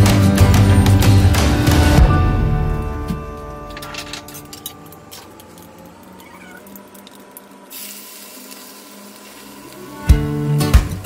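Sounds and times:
hot oil crackling and popping: 0:04.6 - 0:11.0
seeds sizzling in oil: 0:06.6 - 0:11.0.

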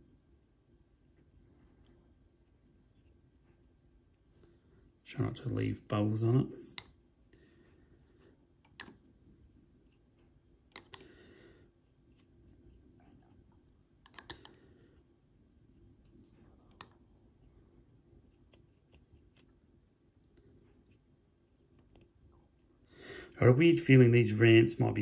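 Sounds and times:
paintbrush soft scratching: 0:00.8 - 0:10.7, 0:11.7 - 0:13.8, 0:15.0 - 0:22.8.

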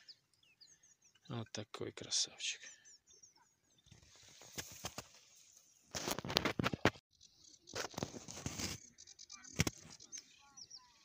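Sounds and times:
camera handling rustle and crackle: 0:04.0 - 0:07.0, 0:07.7 - 0:08.9.

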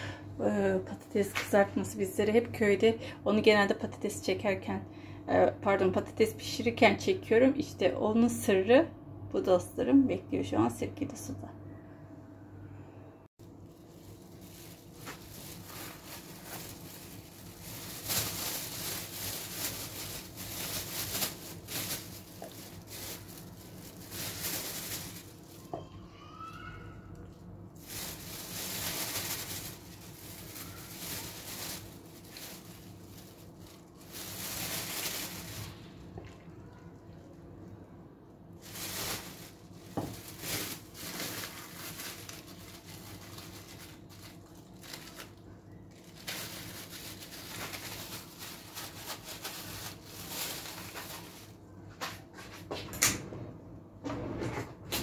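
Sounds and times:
plastic bags rustling and crinkling: 0:13.4 - 0:25.9, 0:27.2 - 0:36.4, 0:38.5 - 0:52.7.

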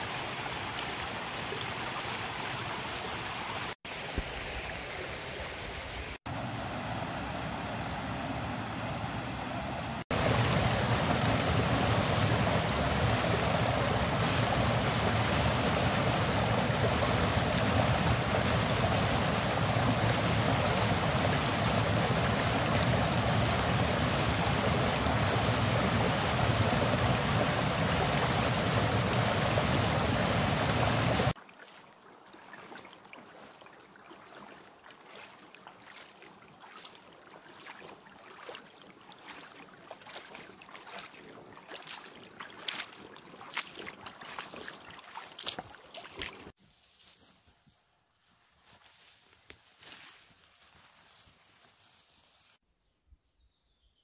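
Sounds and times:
shallow creek flowing: 0:00.0 - 0:46.6
waterfall rushing over rocks: 0:06.5 - 0:31.4
boots splashing through water: 0:10.0 - 0:46.6.

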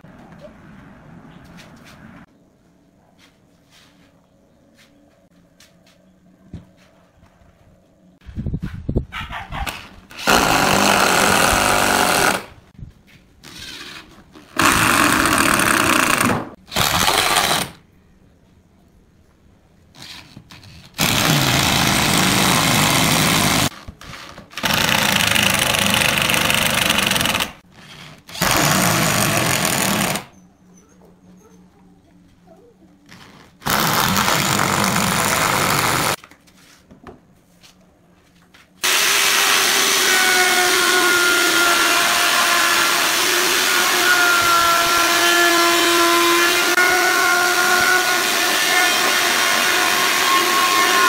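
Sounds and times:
electric drill driving screws: 0:10.1 - 0:12.5, 0:13.5 - 0:17.8, 0:20.0 - 0:30.3, 0:33.6 - 0:36.2, 0:38.8 - 0:51.0.

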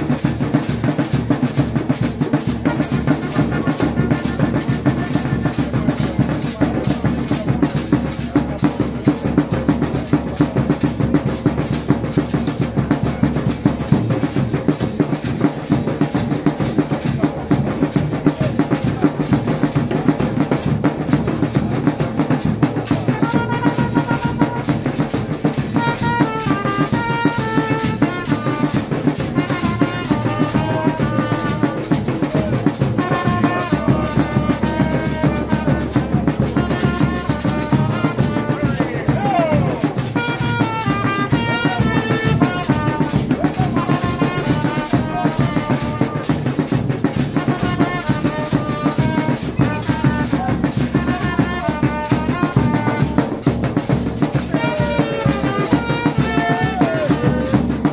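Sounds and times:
large drums beating: 0:00.0 - 0:57.9
trumpet melody: 0:01.3 - 0:09.2, 0:09.9 - 0:57.9.

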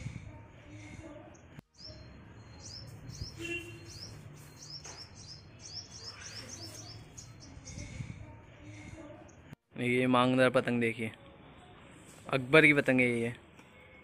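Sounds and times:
small birds chirping: 0:00.6 - 0:09.6.

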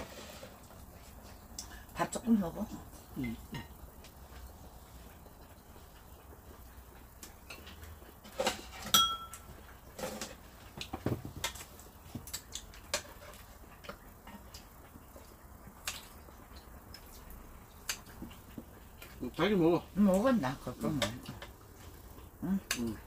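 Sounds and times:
metal utensils clinking on pan: 0:08.2 - 0:10.4.

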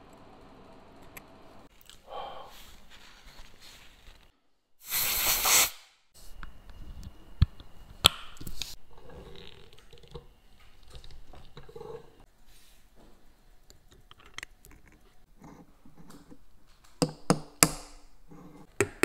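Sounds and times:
blown air hiss: 0:04.8 - 0:05.9.

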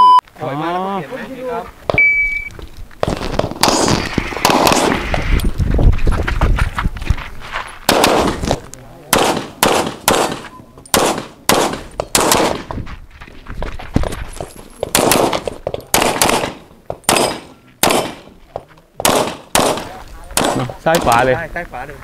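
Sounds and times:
pistol shots with echo: 0:03.4 - 0:05.0, 0:07.9 - 0:08.4, 0:09.1 - 0:12.7, 0:14.9 - 0:18.4, 0:19.0 - 0:21.2.

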